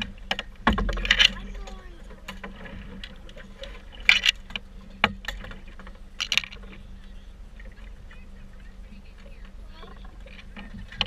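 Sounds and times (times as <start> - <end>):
fishing tackle clacking: 0.0 - 7.1
boat motor humming: 0.0 - 11.0
loud knocks: 0.6 - 1.4.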